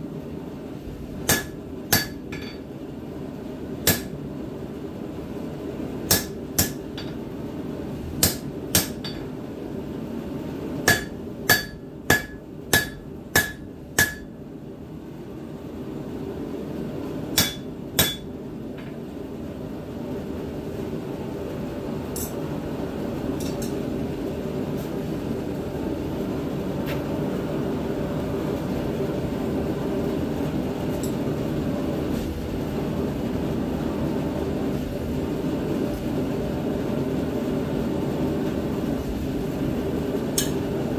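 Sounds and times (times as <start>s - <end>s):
hammer striking metal on anvil: 1.3s - 2.6s, 3.8s - 4.1s, 6.1s - 7.2s, 8.2s - 9.3s, 10.8s - 14.3s, 17.4s - 18.3s.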